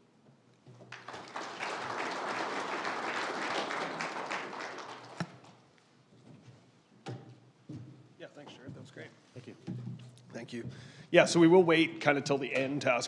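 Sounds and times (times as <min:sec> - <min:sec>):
audience applauding: 0:00.9 - 0:05.6.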